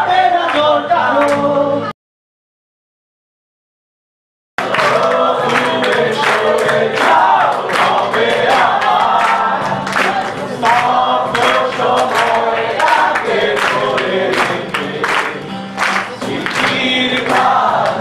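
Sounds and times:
man singing into a microphone: 0.0s - 1.9s, 16.2s - 18.0s
strummed acoustic guitar: 4.6s - 18.0s.

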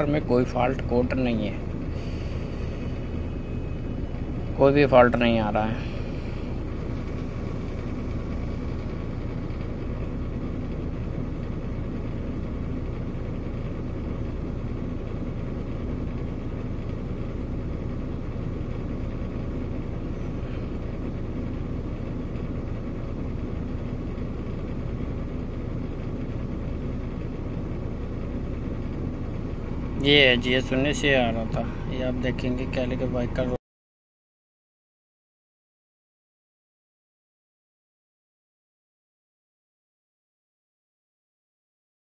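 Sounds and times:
truck diesel engine idling: 0.0s - 33.6s.

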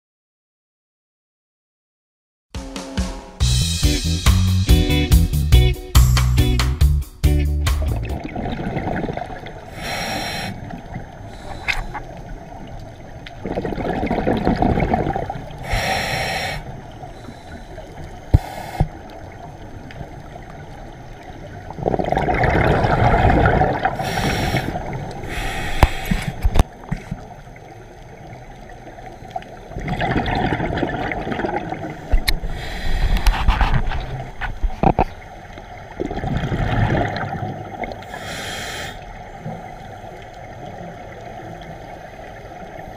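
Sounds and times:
gurgling exhaled bubbles: 7.8s - 27.6s, 29.1s - 38.3s
regulator hissing inhalations: 9.7s - 12.2s, 15.6s - 19.1s, 23.9s - 26.6s, 32.0s - 33.8s, 38.0s - 39.2s.

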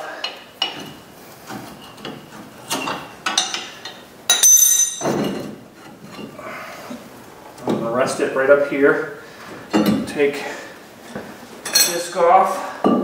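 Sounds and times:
metal knocks and scrapes: 0.6s - 6.4s.

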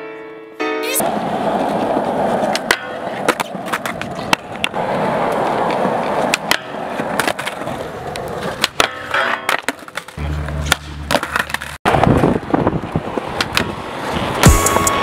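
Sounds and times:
skateboard clacking: 1.0s - 14.8s
skateboard wheels rolling on concrete: 1.0s - 15.0s
music with a beat: 14.4s - 15.0s.

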